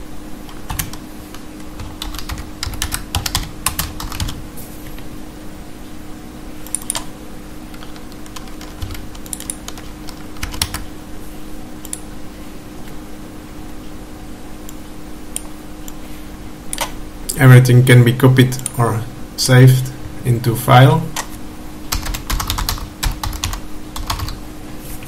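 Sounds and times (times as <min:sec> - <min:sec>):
steady low hum: 0:00.0 - 0:25.0
typing on computer keyboard: 0:00.5 - 0:04.4, 0:06.7 - 0:07.1, 0:07.7 - 0:10.8, 0:21.9 - 0:24.4.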